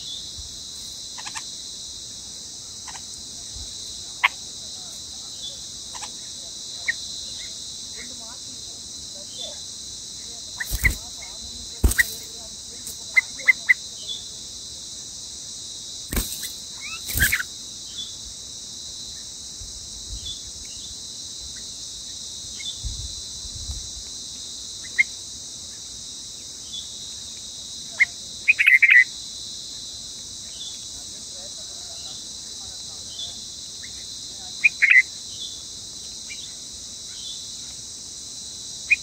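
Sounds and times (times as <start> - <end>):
crickets droning: 0.0 - 39.0
bird giving sharp calls: 10.6 - 11.0, 11.8 - 12.3, 16.1 - 17.5.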